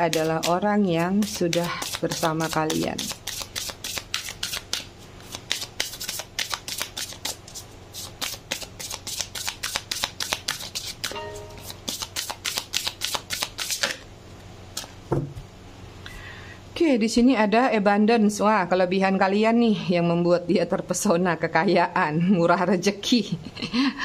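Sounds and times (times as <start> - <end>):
cards being shuffled: 1.2 - 14.0.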